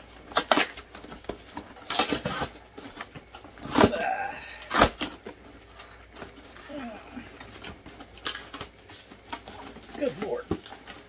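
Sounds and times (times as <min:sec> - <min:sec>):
cardboard box tearing: 0:00.1 - 0:06.9.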